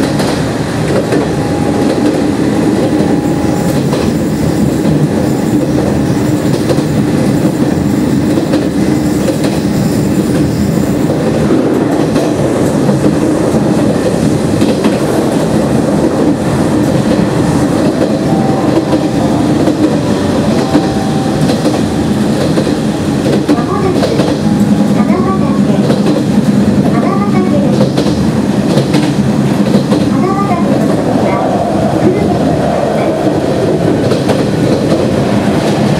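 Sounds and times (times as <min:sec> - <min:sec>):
train wheels on rails: 0:00.0 - 0:35.9.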